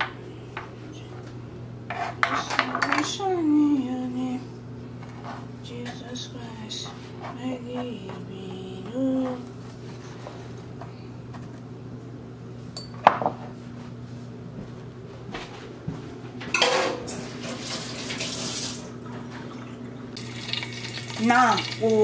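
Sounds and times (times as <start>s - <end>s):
steady low hum: 0.0s - 17.1s
kitchenware clattering: 1.9s - 3.3s, 16.5s - 19.6s
glass bowls clinking: 12.8s - 13.0s, 16.6s - 17.4s.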